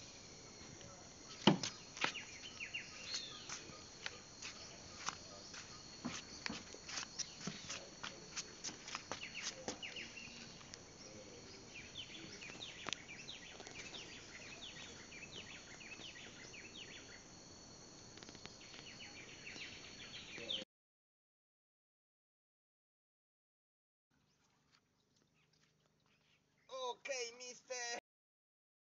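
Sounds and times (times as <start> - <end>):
high insect drone: 0.0 - 20.6
bird chirps: 1.2 - 17.3, 18.6 - 20.6.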